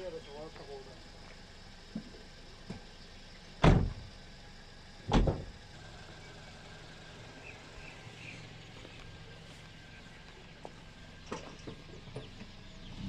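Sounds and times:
car doors slamming shut: 3.6 - 4.1, 5.1 - 5.6.

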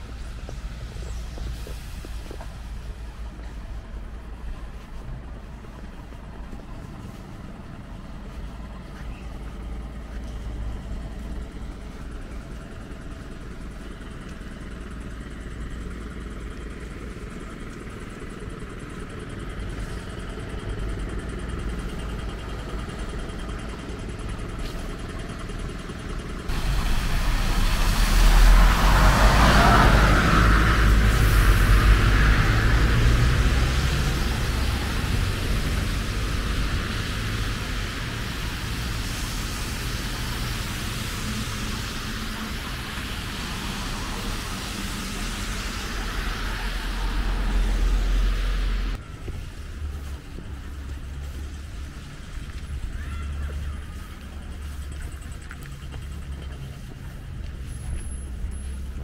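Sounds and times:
street traffic rumble: 0.0 - 59.0
vehicle passing close: 26.5 - 59.0.

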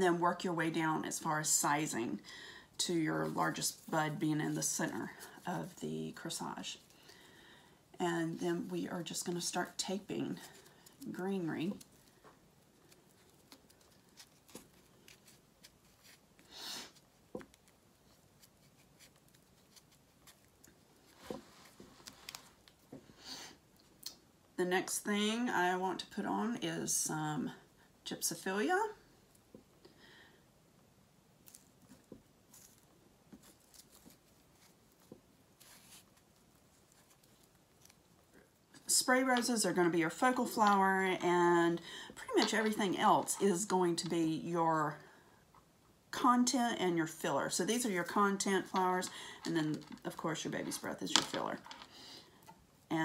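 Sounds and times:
tape rustling: 8.6 - 23.0, 31.4 - 39.6.

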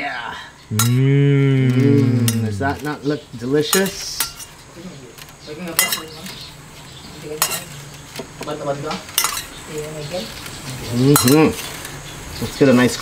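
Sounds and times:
metal spoon clinking on saucepan: 0.8 - 1.0, 3.7 - 4.6, 5.7 - 6.3, 7.4 - 7.8, 9.2 - 9.6, 11.1 - 11.6.

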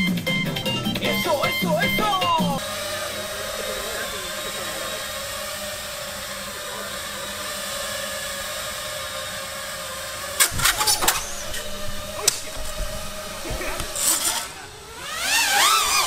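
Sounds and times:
quadcopter motors running: 0.0 - 16.0
sharp cracks: 10.4 - 16.0.

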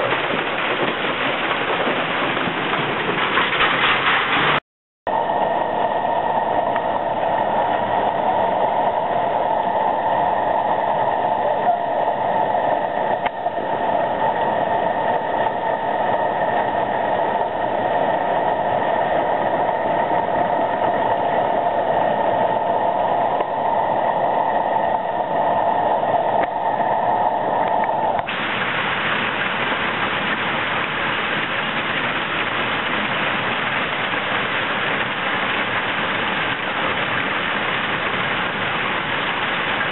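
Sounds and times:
hail pelting on paving: 0.0 - 4.6, 28.3 - 39.9.

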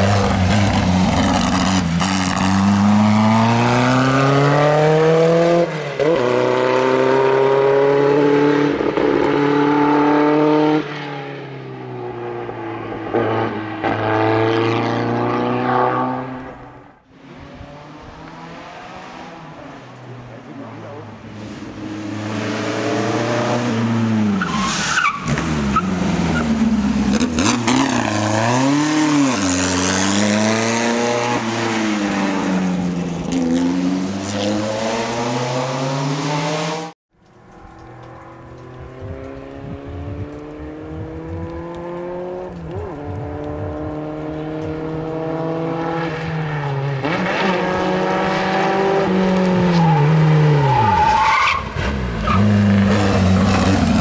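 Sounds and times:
racing car engine revving: 37.8 - 50.8.

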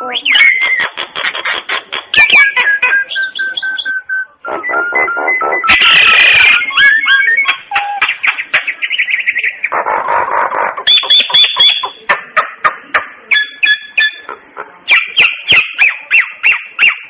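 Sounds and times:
bird singing whistled notes: 0.1 - 1.0, 2.2 - 9.7, 13.3 - 14.3.

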